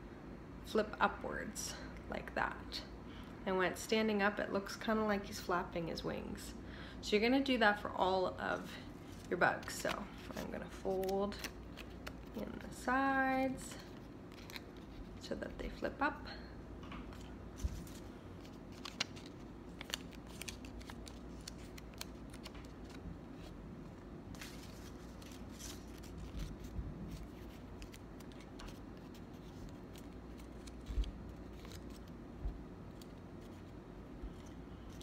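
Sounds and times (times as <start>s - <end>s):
paper crinkling: 9.0s - 12.7s, 13.8s - 15.2s, 17.1s - 23.6s, 24.3s - 32.2s.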